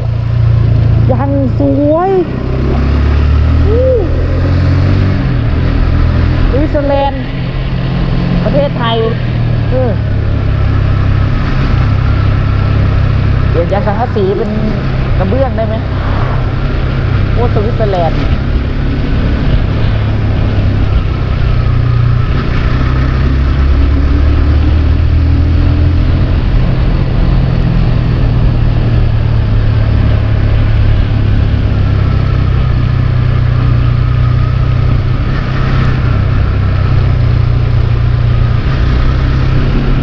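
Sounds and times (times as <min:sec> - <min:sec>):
motorcycle engine running: 0:00.0 - 0:40.0
road and wind rumble: 0:00.0 - 0:40.0.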